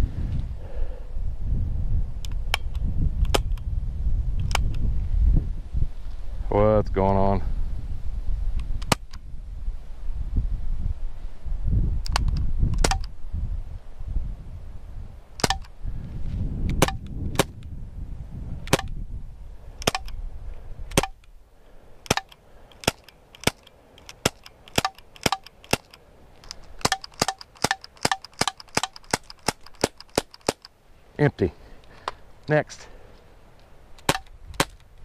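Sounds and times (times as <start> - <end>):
air pistol shots: 12.2 - 13.1, 15.4 - 15.7, 34.0 - 34.8.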